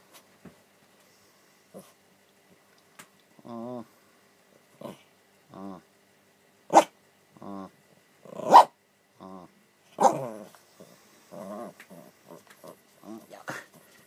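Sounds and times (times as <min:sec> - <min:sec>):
small dog barking sharply: 0:06.7 - 0:06.9, 0:08.5 - 0:08.7.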